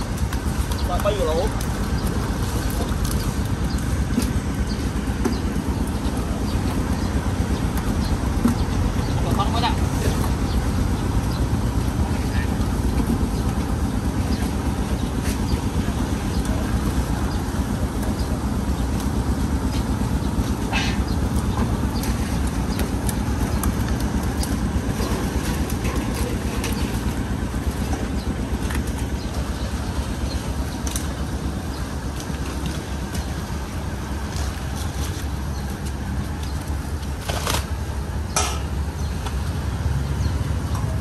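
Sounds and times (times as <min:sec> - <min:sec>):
rumble of traffic: 0:00.0 - 0:41.0.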